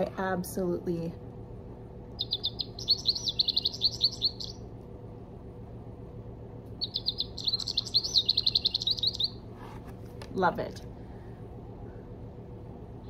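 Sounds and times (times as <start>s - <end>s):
recorded bird song from small speaker: 2.1s - 4.7s, 6.8s - 9.5s.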